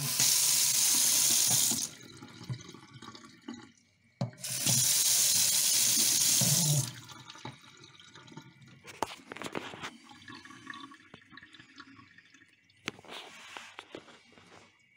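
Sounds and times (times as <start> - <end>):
water dripping in sink: 0.0 - 9.0, 10.2 - 13.0.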